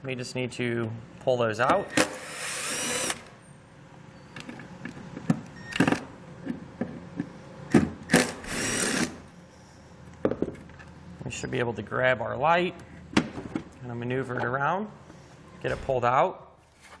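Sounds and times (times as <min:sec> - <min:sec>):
cordless drill motor: 0:01.9 - 0:03.3, 0:08.1 - 0:09.2.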